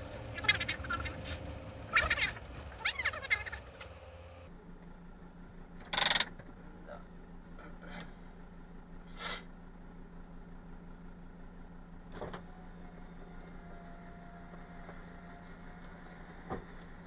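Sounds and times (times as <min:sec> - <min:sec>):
truck engine idling: 0:00.0 - 0:05.8.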